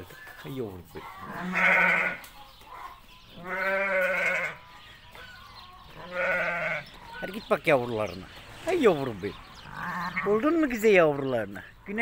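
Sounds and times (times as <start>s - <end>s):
ewe bleating: 1.2s - 2.3s, 3.4s - 4.6s, 6.0s - 7.0s, 9.6s - 10.5s.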